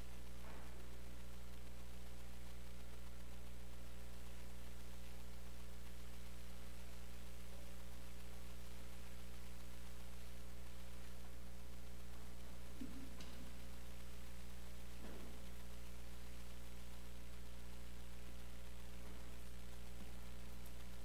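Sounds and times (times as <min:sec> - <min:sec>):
electrical mains hum: 0:00.0 - 0:21.0
faint hiss: 0:00.0 - 0:21.0.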